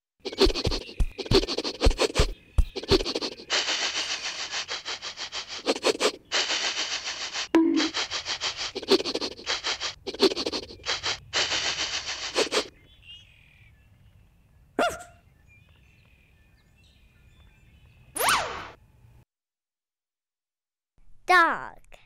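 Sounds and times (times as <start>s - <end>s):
dog sniffing: 0.2s - 12.7s
faint bird chirps: 0.3s - 6.2s.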